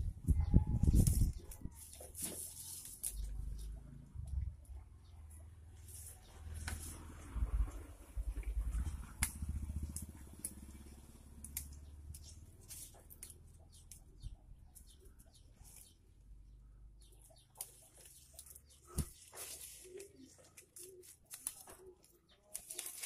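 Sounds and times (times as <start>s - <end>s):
low wind rumble on microphone: 0.0s - 1.8s
leaves and branches rustling: 0.7s - 3.8s, 5.7s - 16.2s, 17.2s - 23.0s
pruning clicks and snaps: 8.4s - 15.9s, 17.3s - 19.1s.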